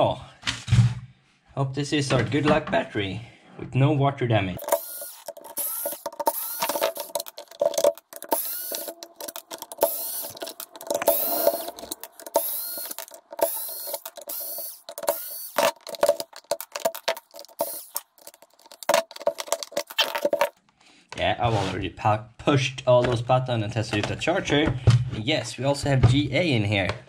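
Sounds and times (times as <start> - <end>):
electric screwdriver motor whirring: 4.6 - 20.5.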